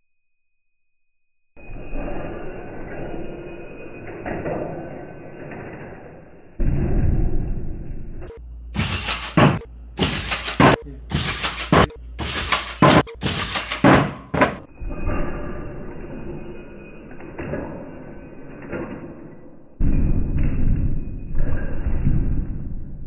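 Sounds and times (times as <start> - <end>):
muffled crashes and rattling: 4.2 - 15.5
metal foot striking floor: 6.6 - 15.2.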